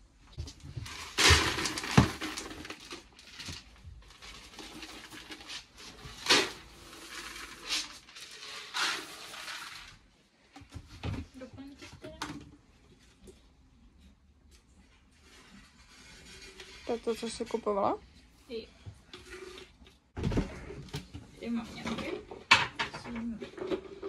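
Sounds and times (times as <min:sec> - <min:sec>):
plastic buckets clattering: 0:00.4 - 0:12.6, 0:19.1 - 0:24.0.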